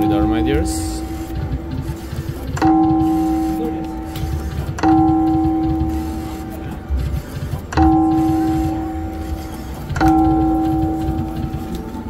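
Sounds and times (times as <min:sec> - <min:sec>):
slot machine bell chime: 0:02.6 - 0:04.0, 0:04.6 - 0:06.6, 0:07.7 - 0:11.8.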